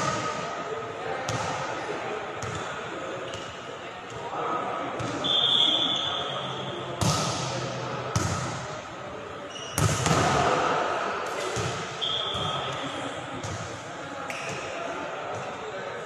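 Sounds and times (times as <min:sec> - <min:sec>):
referee's whistle blast: 0:05.2 - 0:06.5, 0:12.0 - 0:12.6.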